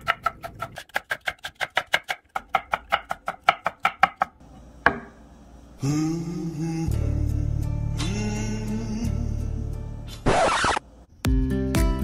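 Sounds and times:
knife chopping on wooden board: 0.0s - 5.2s.

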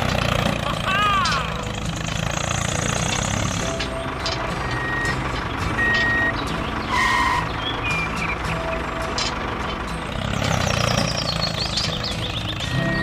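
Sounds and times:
heavy vehicle engine running: 0.0s - 13.0s
short electronic beeps: 3.9s - 5.2s, 5.8s - 8.2s.

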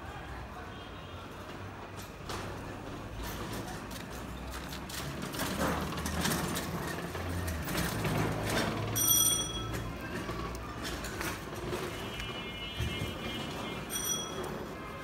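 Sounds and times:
high ringing tone: 13.9s - 14.6s.

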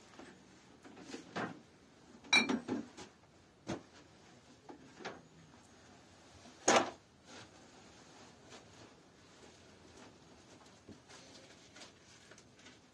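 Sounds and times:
objects knocking and clattering: 2.2s - 4.0s.

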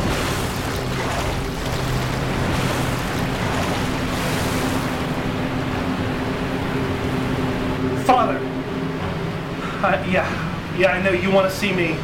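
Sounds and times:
water rushing across floor: 0.0s - 5.4s.

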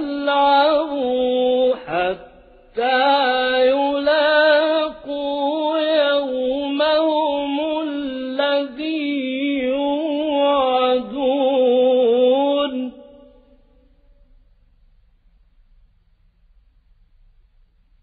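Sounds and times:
man chanting melodically: 0.0s - 13.4s.

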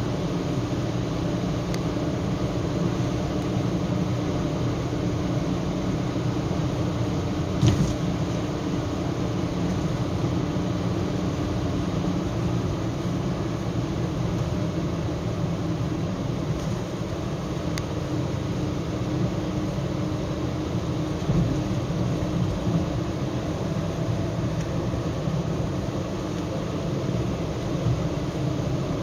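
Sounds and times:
car interior road noise: 0.0s - 29.0s
thump: 7.6s - 8.0s.

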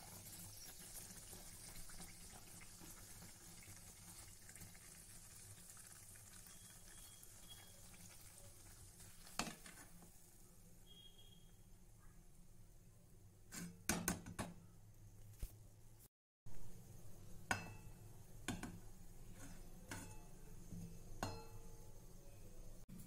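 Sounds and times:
metal spoon clinking against pan: 19.9s - 20.4s, 21.2s - 21.8s.

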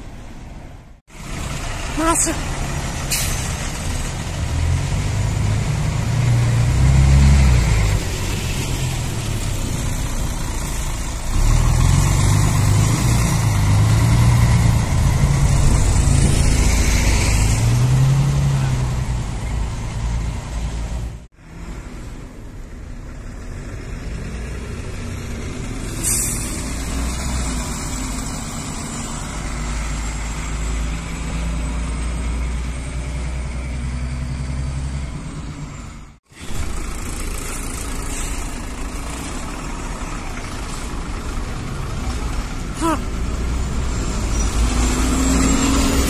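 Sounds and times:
diesel bus engines idling: 0.0s - 6.9s, 7.7s - 17.4s, 22.1s - 44.6s.

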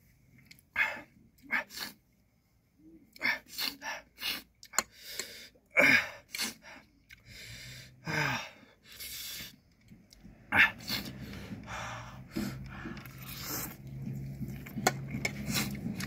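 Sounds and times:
man gasping and breathing hard: 3.1s - 9.6s, 10.5s - 13.8s
man sniffing: 10.5s - 13.8s.

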